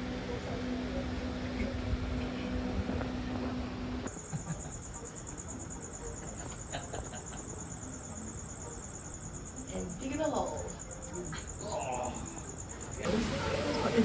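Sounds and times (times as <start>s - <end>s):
low mechanical hum: 0.0s - 14.0s
night insects chirping: 4.1s - 14.0s.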